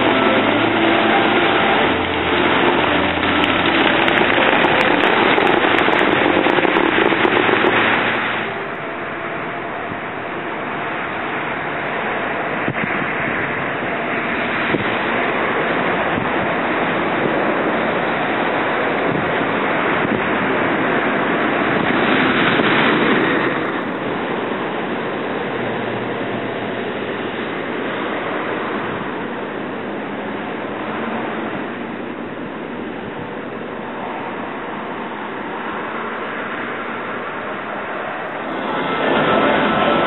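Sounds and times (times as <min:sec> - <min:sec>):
sharp cracks: 0:00.0 - 0:08.8
fountain jets spraying: 0:00.0 - 0:40.0
steady outdoor hum: 0:00.0 - 0:40.0.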